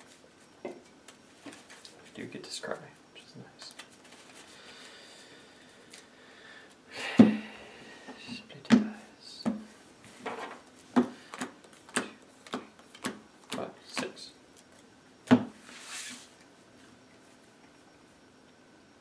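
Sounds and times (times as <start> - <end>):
soft brushing: 15.6 - 16.4.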